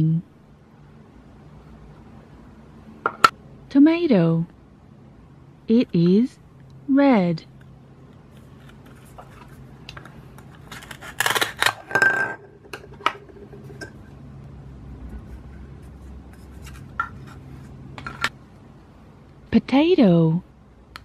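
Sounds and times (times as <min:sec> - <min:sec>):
velcro ripping: 0:10.7 - 0:11.8.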